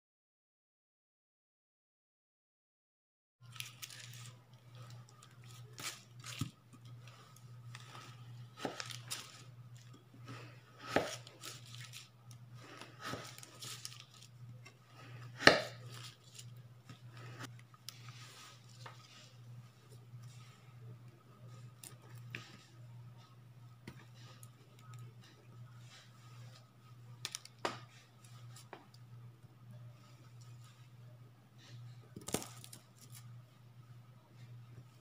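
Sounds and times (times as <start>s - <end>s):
steady low hum: 3.4s - 35.0s
knife cutting through candy: 3.5s - 19.3s
knocks and crunches of chunks: 32.2s - 33.2s.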